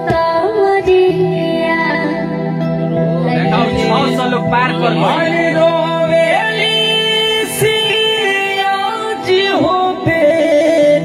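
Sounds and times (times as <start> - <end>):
sustained accompaniment: 2.5 - 9.3
man singing folk song: 3.4 - 11.0.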